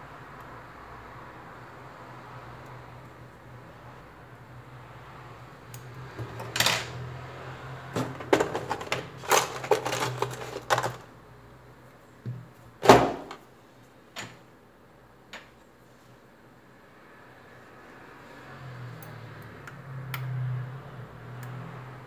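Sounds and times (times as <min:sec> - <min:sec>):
small parts clattering: 0:06.2 - 0:07.0, 0:08.0 - 0:11.2
tools clicking and knocking: 0:08.0 - 0:11.0.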